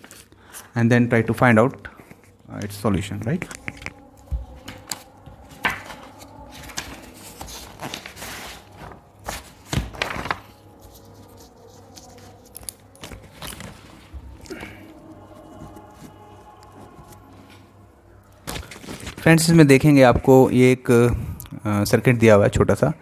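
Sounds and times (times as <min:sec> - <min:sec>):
paper sheets rustling: 0:00.0 - 0:00.7, 0:03.2 - 0:17.7, 0:18.3 - 0:19.6.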